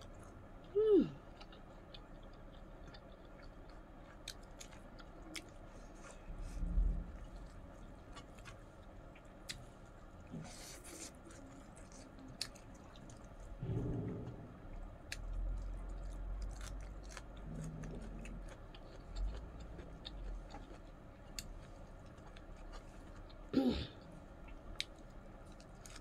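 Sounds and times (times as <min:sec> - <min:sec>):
low thump: 0:13.6 - 0:14.8
wet chewing: 0:15.1 - 0:23.4, 0:24.4 - 0:26.0.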